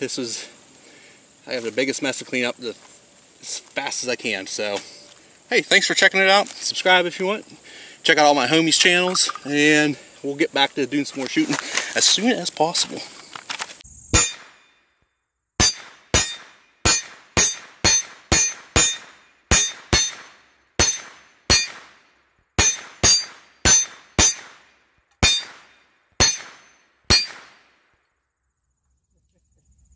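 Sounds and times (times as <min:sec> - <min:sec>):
rounds striking steel target: 0:14.1 - 0:14.8, 0:15.6 - 0:27.8.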